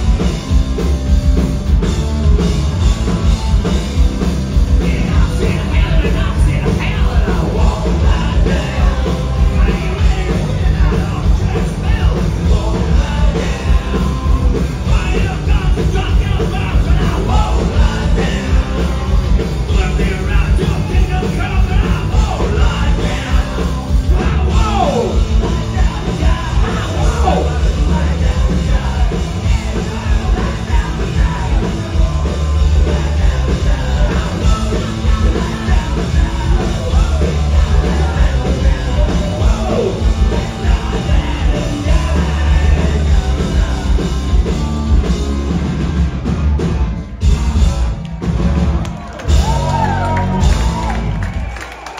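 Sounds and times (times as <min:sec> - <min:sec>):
punk rock band playing live: 0:00.0 - 0:51.9
shouted vocals: 0:19.7 - 0:43.8, 0:48.8 - 0:51.9.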